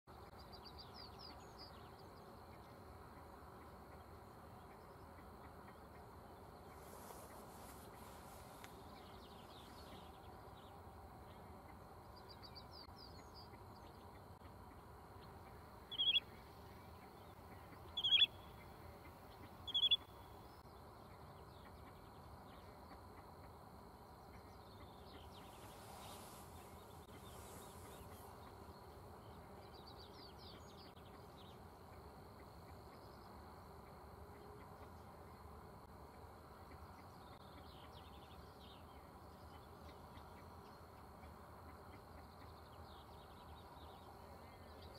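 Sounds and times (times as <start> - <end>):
loud bird calls: 15.4 - 16.2, 16.9 - 20.1.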